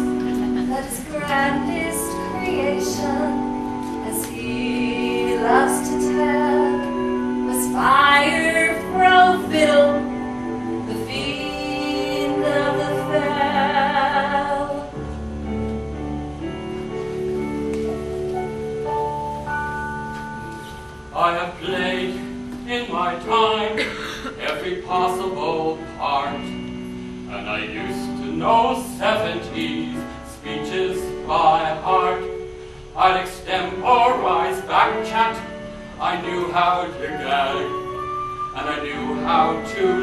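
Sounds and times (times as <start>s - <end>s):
sustained accompaniment chords: 0.0s - 32.8s.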